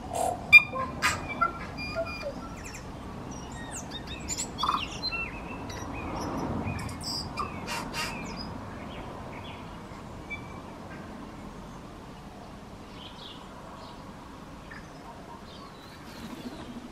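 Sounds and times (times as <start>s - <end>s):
bird singing with clicks and whistles: 0.5s - 8.5s.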